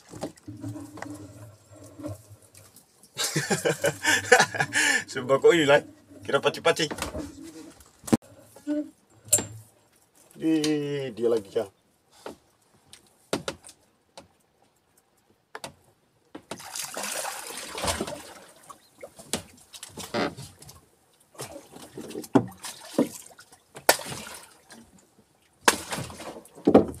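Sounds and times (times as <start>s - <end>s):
water splashing against boat: 16.5s - 27.0s.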